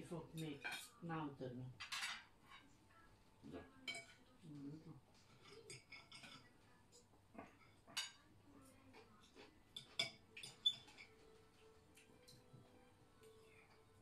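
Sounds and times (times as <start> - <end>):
cutlery clinking on plates: 0.4 - 1.0, 1.8 - 2.7, 3.5 - 4.3, 5.2 - 8.3, 8.9 - 12.6.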